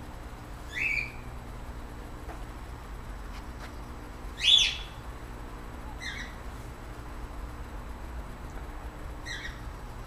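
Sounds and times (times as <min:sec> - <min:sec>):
steady low hum: 0:00.0 - 0:10.0
bird chirping: 0:00.7 - 0:01.3, 0:04.4 - 0:05.0, 0:06.0 - 0:06.4, 0:09.2 - 0:09.7.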